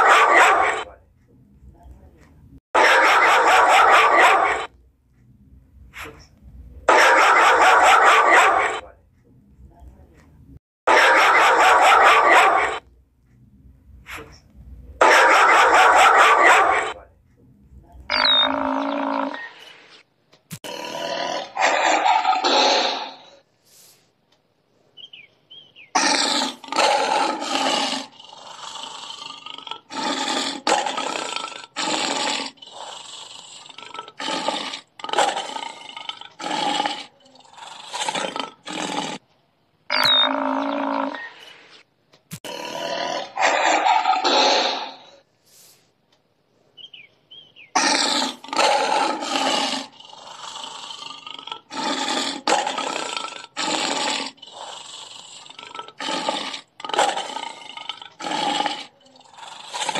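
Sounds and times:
big cat roaring: 0:18.1 - 0:19.8, 0:26.0 - 0:39.2, 0:39.9 - 0:41.6, 0:42.4 - 0:45.2, 0:47.8 - 0:59.9.

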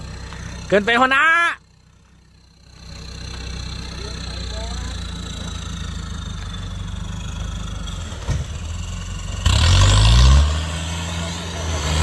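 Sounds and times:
vehicle engine revving: 0:02.7 - 0:12.0.

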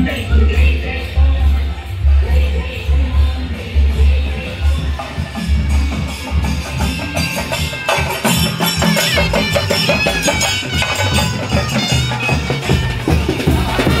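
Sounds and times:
steady drumming: 0:00.0 - 0:14.0
wind instrument melody: 0:04.4 - 0:14.0.

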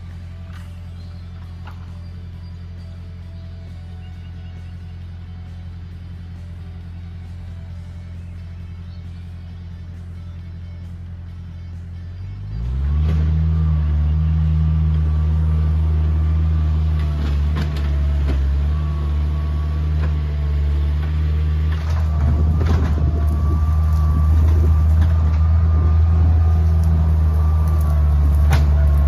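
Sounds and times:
skid steer engine revving: 0:00.0 - 0:29.0.

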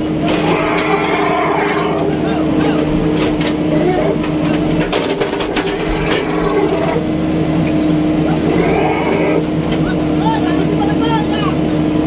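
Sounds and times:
excavator engine humming: 0:00.0 - 0:12.0
bucket clanking and scraping: 0:02.4 - 0:07.2.

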